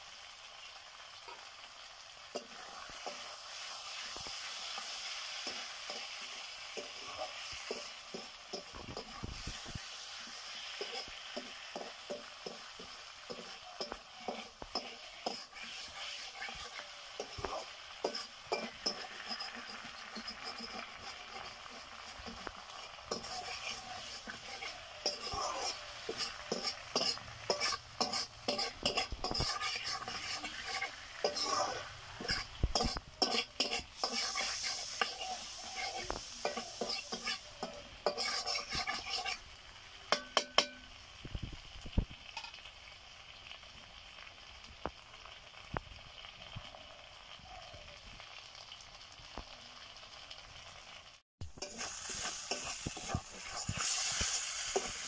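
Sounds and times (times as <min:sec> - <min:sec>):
chicken sizzling: 0:00.0 - 0:55.0
wooden spatula scraping a pan: 0:10.7 - 0:39.4, 0:51.6 - 0:55.0.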